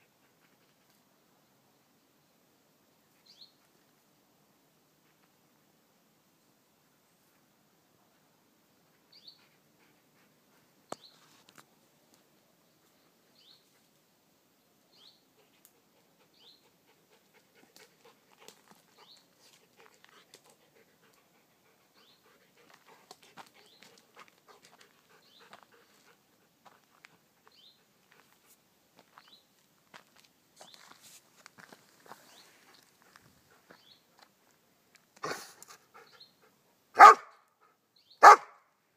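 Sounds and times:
footsteps crunching on dirt: 29.0s - 34.3s.

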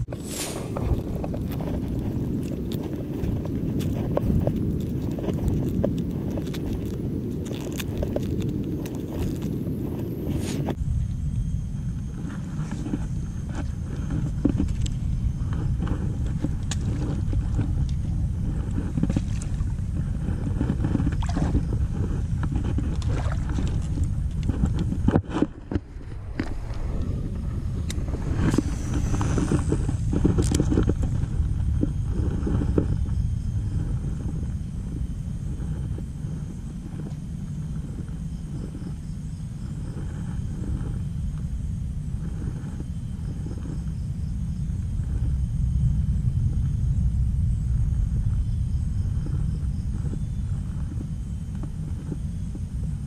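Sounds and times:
clicks and rustles: 0.0s - 10.8s, 27.8s - 33.0s
wind buffeting microphone: 0.0s - 53.0s.

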